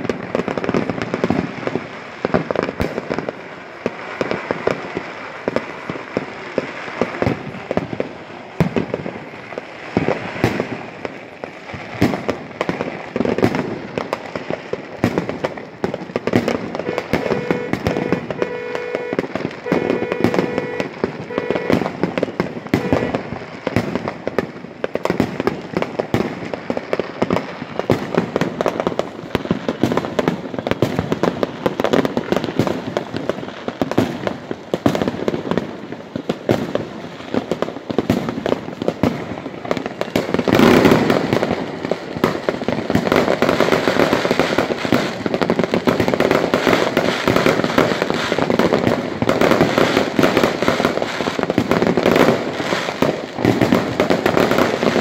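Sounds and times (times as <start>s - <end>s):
fireworks bangs and crackles: 0.0s - 55.0s.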